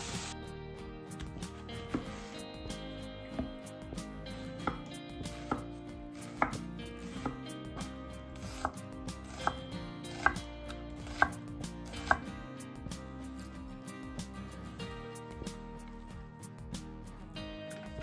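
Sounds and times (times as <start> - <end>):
knife slicing onion on board: 1.2 - 13.6.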